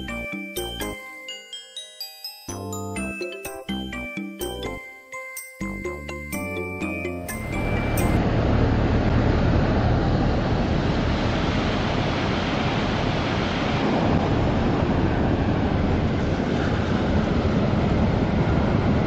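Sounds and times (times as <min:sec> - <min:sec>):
wind buffeting microphone: 0:10.1 - 0:19.0.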